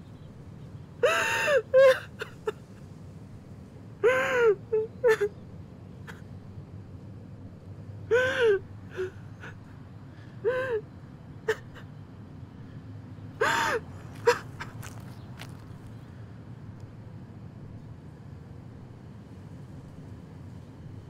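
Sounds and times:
man sobbing: 1.0 - 2.6.

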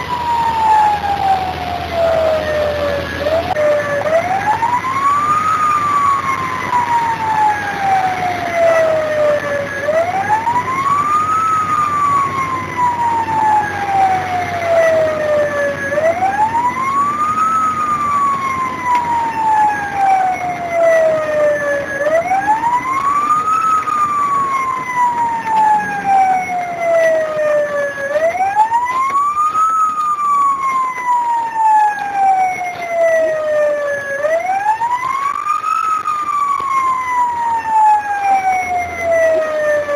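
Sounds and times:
fire engine siren wailing: 0.0 - 39.9
truck engine and road rumble: 0.0 - 39.9.

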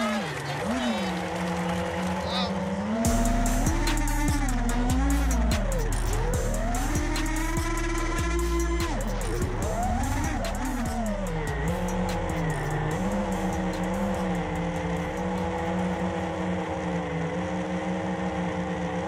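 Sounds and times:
quadcopter motors whining: 0.0 - 19.0.

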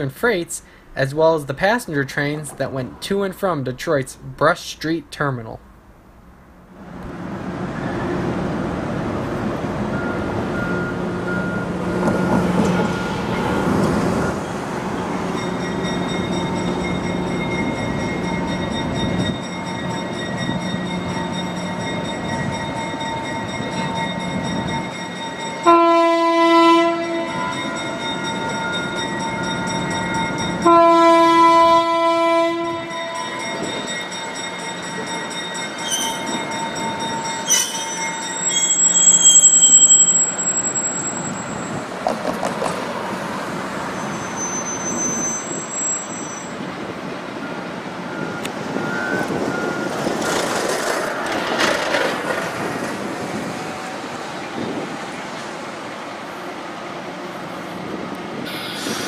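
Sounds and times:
locomotive horn blasts: 25.6 - 27.7, 30.6 - 33.4.

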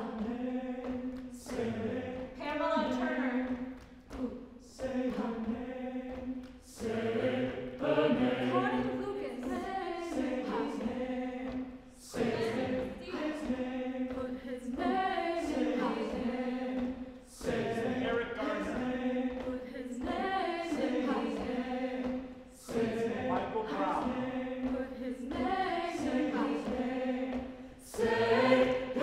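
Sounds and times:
choir singing a cappella: 0.0 - 29.0.

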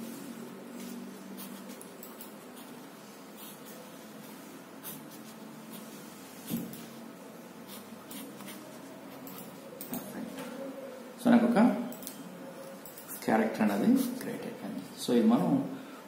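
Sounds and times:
pencil scratching on paper: 1.3 - 6.9, 7.6 - 8.9.

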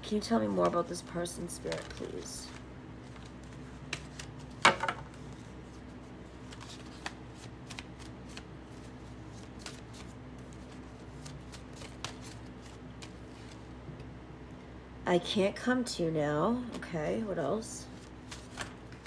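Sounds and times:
cards shuffling by hand: 0.3 - 13.7, 17.9 - 19.0.

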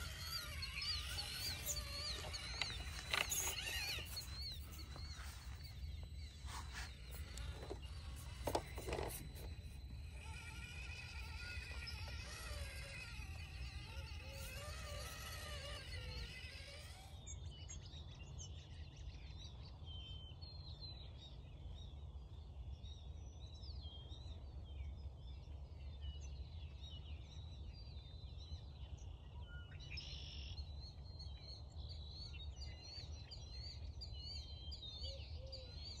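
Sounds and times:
small birds chirping: 0.0 - 19.8.

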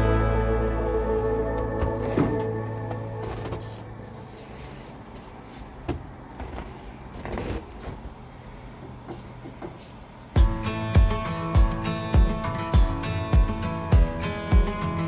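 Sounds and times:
plucked guitar tune: 0.0 - 3.8, 10.4 - 15.0
low background hum: 0.0 - 15.0.

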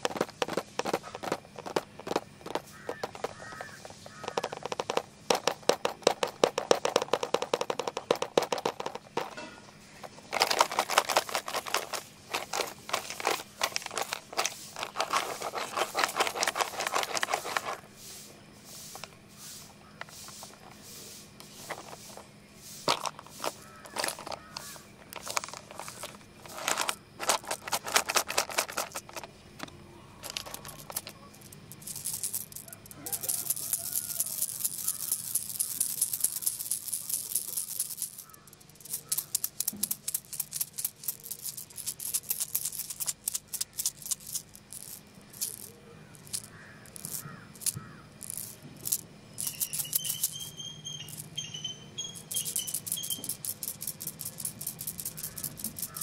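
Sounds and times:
fingernails tapping on plastic box: 0.3 - 8.8.

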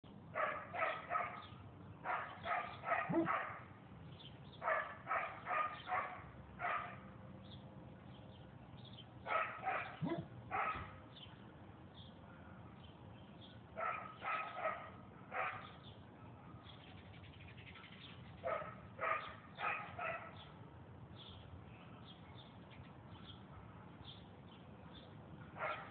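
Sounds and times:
dog barking: 0.4 - 3.7, 4.6 - 7.0, 9.2 - 11.0, 13.8 - 15.8, 18.4 - 20.5, 25.6 - 25.9.

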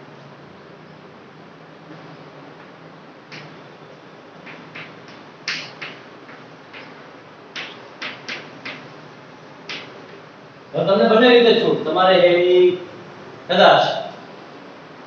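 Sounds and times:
steady background hiss: 0.0 - 15.0
chalk tapping and scraping on blackboard: 3.3 - 3.6, 4.4 - 10.2.

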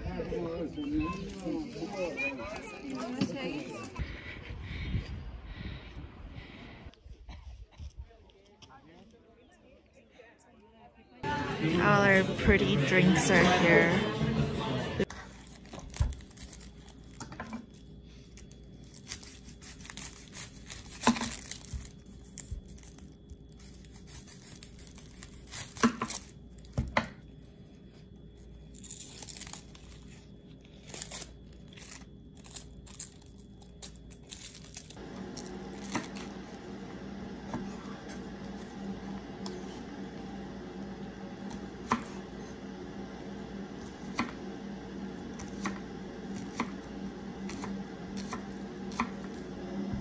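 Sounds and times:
onion skin crackling: 15.1 - 36.6.

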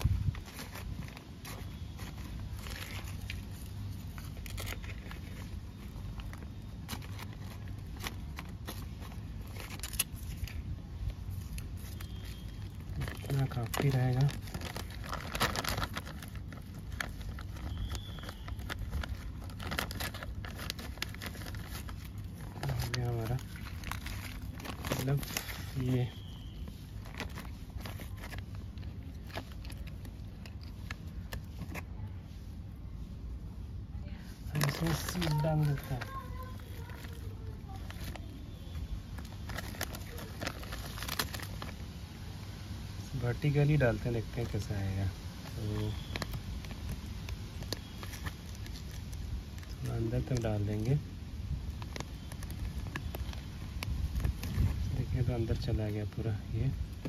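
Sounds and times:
paper bag rustling and crackling: 0.0 - 33.2, 34.1 - 57.0
low background rumble: 0.0 - 57.0
low steady hum: 0.0 - 57.0.

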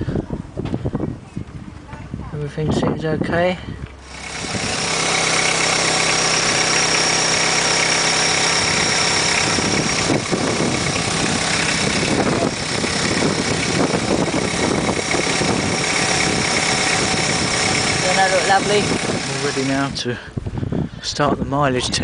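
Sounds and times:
thin steady whine: 4.0 - 20.2
van engine idling: 4.0 - 20.2.

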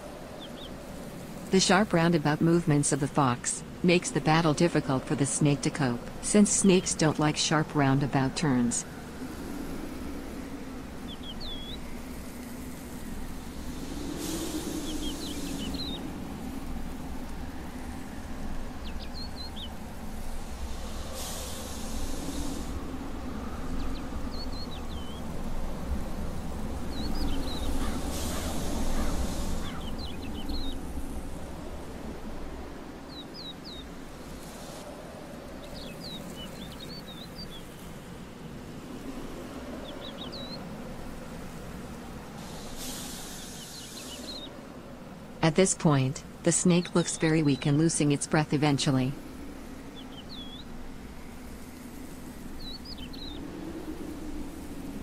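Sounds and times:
bursts of hiss: 20.7 - 22.8, 42.4 - 44.4.

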